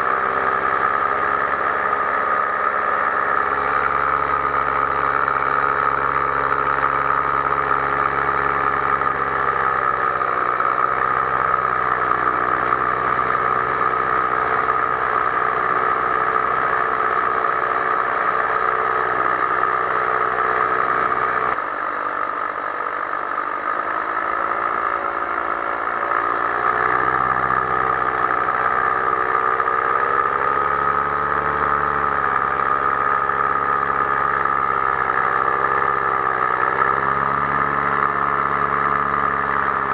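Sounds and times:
paramotor engine running: 0:00.0 - 0:39.9.

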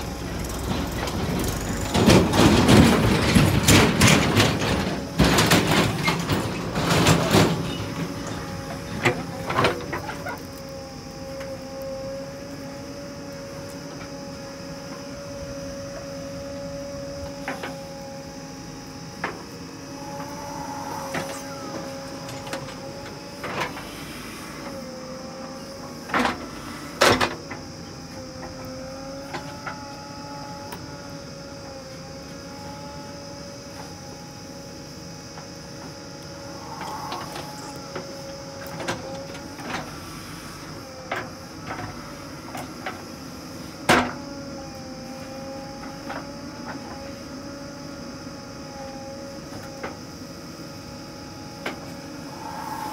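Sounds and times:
bucket and arm clanking: 0:00.0 - 0:10.6
diesel engine under load: 0:00.0 - 0:52.9.

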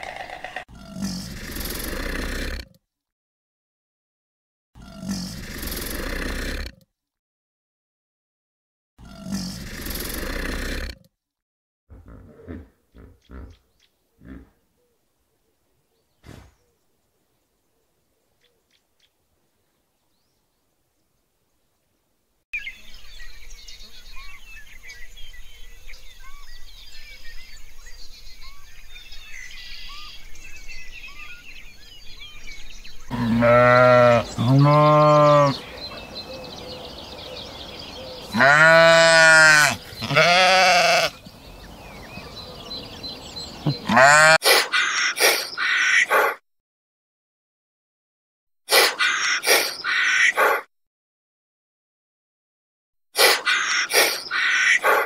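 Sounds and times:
sheep bleating: 0:33.1 - 0:35.7, 0:38.3 - 0:41.2, 0:43.6 - 0:44.4.

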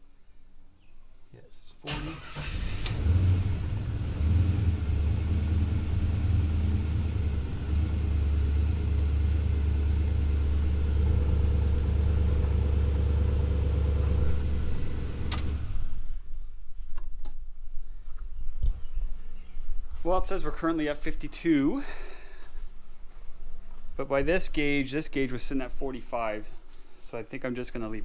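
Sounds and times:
car engine starting and idling: 0:01.8 - 0:16.2.

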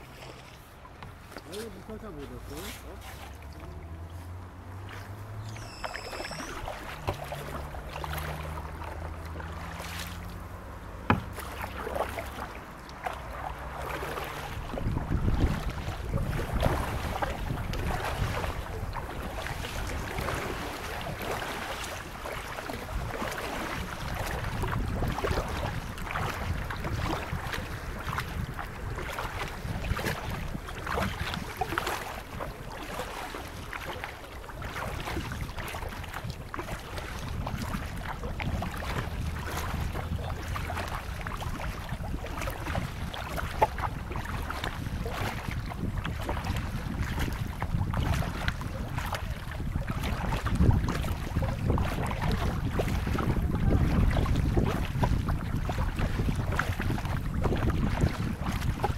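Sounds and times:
paddle splashing water: 0:00.0 - 0:58.9
wind on microphone: 0:14.2 - 0:58.9.

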